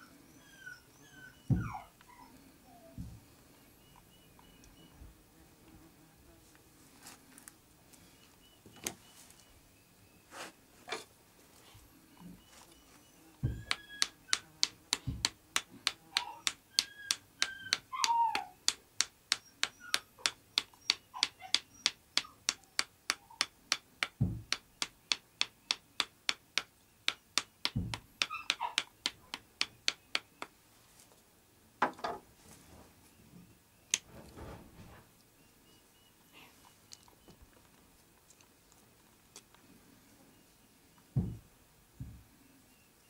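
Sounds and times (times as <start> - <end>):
dull thuds: 1.5 - 1.8, 13.4 - 13.9, 14.9 - 15.4, 24.2 - 24.6, 27.6 - 28.2, 41.2 - 42.3
knife handle tapping on stick: 13.4 - 30.5.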